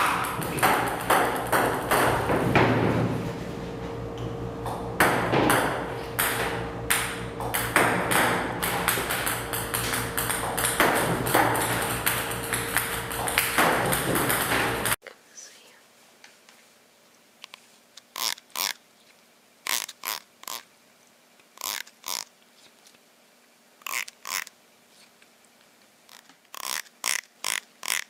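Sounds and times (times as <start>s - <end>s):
table tennis balls clicking: 0.0s - 2.7s, 5.1s - 15.0s
steady low hum: 0.0s - 16.0s.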